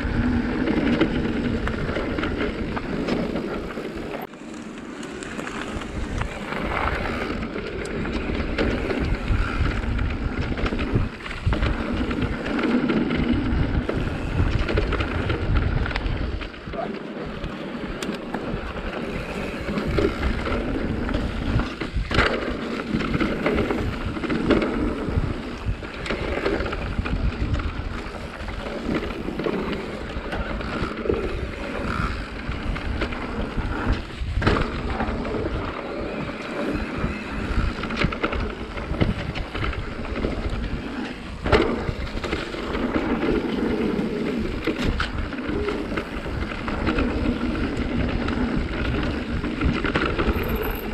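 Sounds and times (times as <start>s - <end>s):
wind buffeting microphone: 0.0s - 4.3s, 5.2s - 50.9s
bike rattling: 0.0s - 50.9s
bike tyres rolling over dirt: 0.0s - 50.9s
wheels knocking on bumps: 0.0s - 50.9s.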